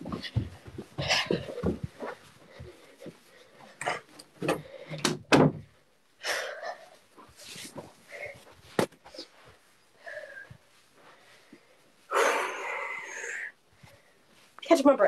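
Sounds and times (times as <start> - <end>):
knocks and bumps: 0.0 - 3.2, 3.8 - 5.7
rustling: 6.8 - 12.1.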